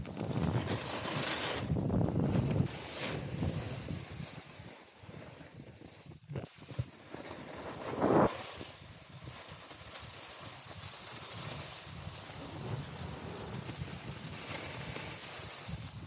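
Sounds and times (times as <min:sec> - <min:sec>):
snowboard scraping on snow: 0:00.0 - 0:16.0
wind rumble on microphone: 0:01.6 - 0:06.9, 0:10.6 - 0:16.0.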